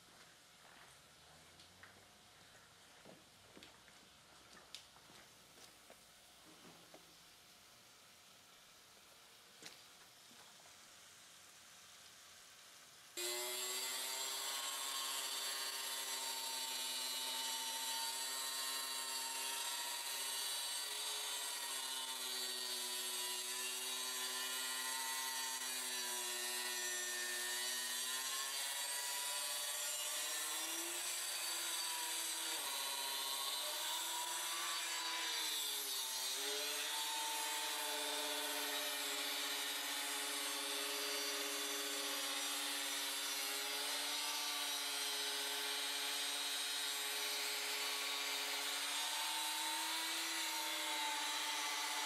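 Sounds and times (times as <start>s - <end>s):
wet saw cutting stone: 13.2s - 52.0s.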